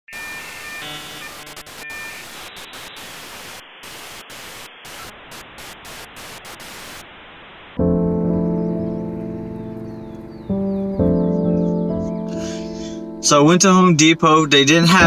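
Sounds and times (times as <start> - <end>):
glitchy static hiss: 0.1 - 7.8
sustained musical chord: 7.8 - 15.0.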